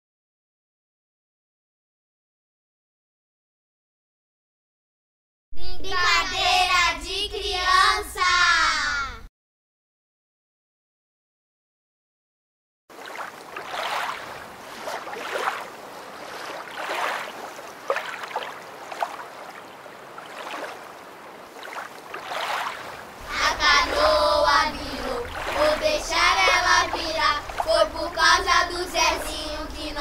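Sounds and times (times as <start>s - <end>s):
child singing: 5.6s - 9.3s, 23.2s - 30.0s
water sloshing and splashing: 12.9s - 30.0s
low hum: 23.2s - 30.0s.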